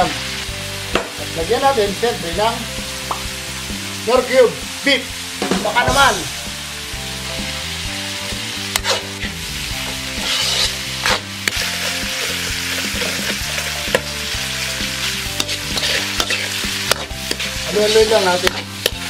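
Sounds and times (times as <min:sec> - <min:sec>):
meat sizzling in a wok: 0:00.0 - 0:19.0
soft background music: 0:00.0 - 0:19.0
metal ladle scraping a pan: 0:08.7 - 0:19.0.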